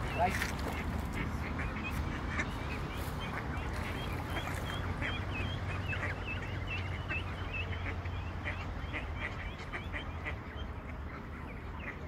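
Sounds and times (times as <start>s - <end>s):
ducks chirping and quacking: 0.0s - 12.0s.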